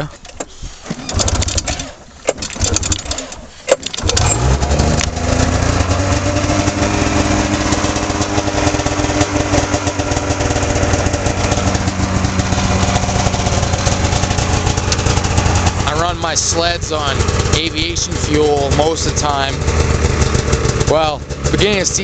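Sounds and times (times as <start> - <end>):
snowmobile engine starting and idling: 0.7 - 22.0
clicks: 14.8 - 15.1.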